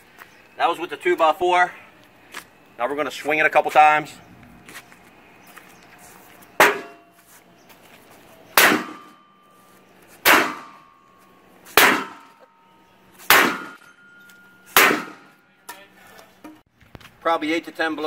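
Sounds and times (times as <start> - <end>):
wood striking metal panel: 6.6 - 7.0.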